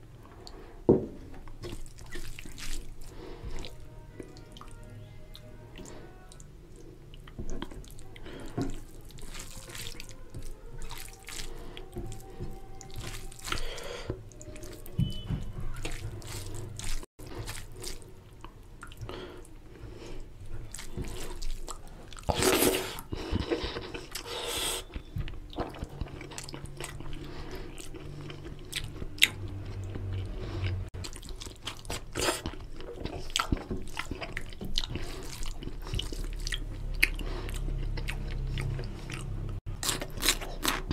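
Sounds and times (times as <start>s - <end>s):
fingers squishing rice in curry: 1.6s - 4.7s, 7.4s - 15.2s
chewing and lip smacks: 20.7s - 40.9s.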